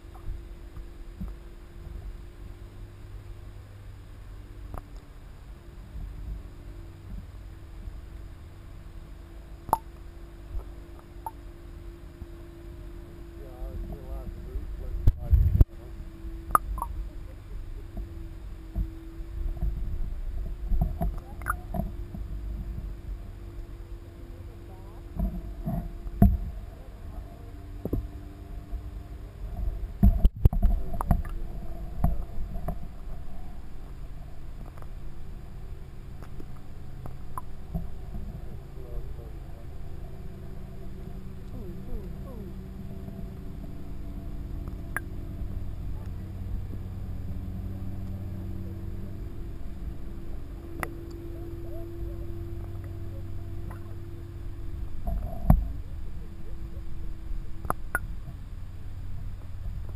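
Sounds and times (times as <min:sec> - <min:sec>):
faint steady hum: 0:00.0 - 0:59.9
muffled underwater rumble: 0:00.0 - 0:59.9
faint ticks: 0:09.6 - 0:11.4, 0:29.5 - 0:33.0, 0:34.6 - 0:35.0, 0:49.6 - 0:51.8, 0:52.5 - 0:54.0, 0:57.6 - 0:58.4.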